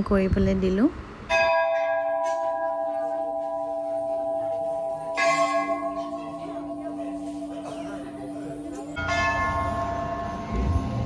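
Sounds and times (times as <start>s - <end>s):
temple bell ringing: 1.3s - 11.0s.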